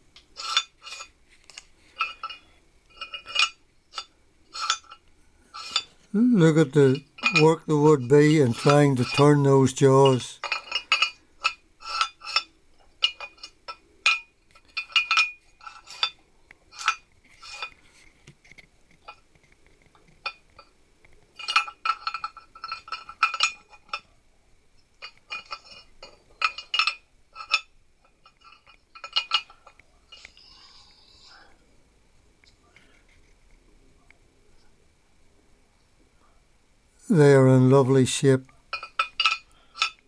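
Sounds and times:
metal parts clinking: 0:00.4 - 0:17.8, 0:21.4 - 0:24.0, 0:25.0 - 0:30.5, 0:38.7 - 0:40.0.

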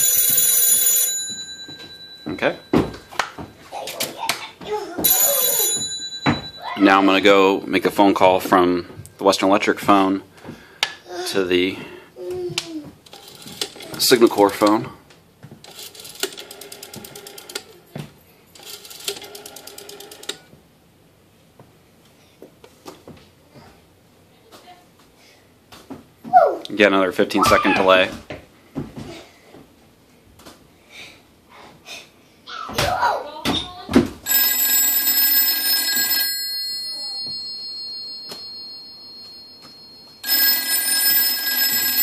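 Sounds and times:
telephone bell ringing: 0:00.0 - 0:03.7, 0:05.0 - 0:08.2, 0:34.2 - 0:42.0.

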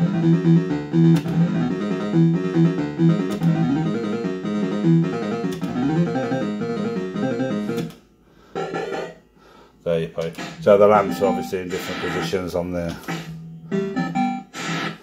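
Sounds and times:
fruit machine electronic tune: 0:00.0 - 0:07.9, 0:10.4 - 0:12.4, 0:13.1 - 0:15.0.

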